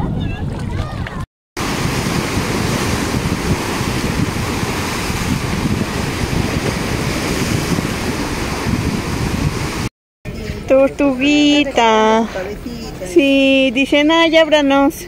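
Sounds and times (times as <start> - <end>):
wind buffeting microphone: 0.0 - 9.9
surf breaking on rocky shore: 1.6 - 9.9.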